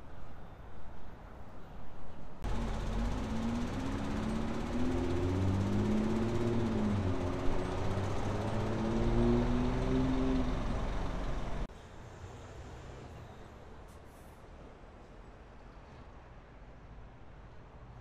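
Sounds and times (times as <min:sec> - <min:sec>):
quiet street background: 0:00.0 - 0:18.0
vehicle engine drone: 0:02.4 - 0:13.4
road traffic roar: 0:02.4 - 0:17.9.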